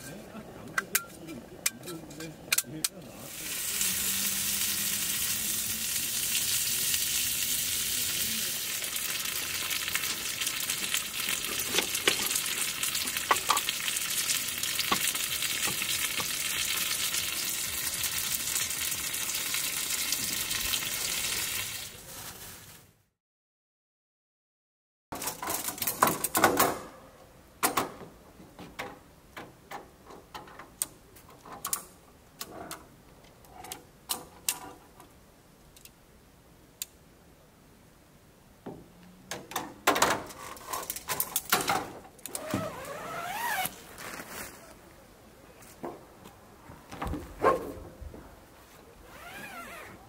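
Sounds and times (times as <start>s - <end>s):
tent fabric rustling: 22.0s - 23.0s, 42.4s - 44.9s, 48.5s - 50.0s.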